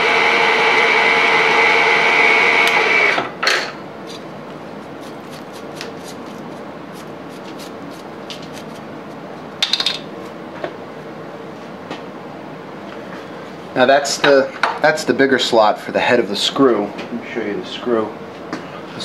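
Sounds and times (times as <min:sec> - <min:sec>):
milling machine whine: 0:00.0 - 0:03.4.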